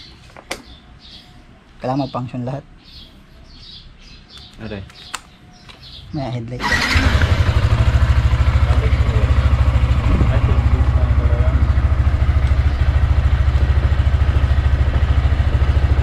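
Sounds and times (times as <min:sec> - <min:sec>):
motorcycle engine idling: 0:06.6 - 0:16.0.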